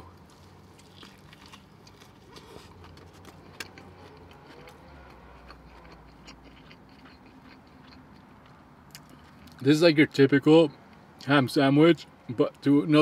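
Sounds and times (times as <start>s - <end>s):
person chewing sandwich: 0.0s - 9.6s
wet mouth clicks: 5.5s - 8.3s.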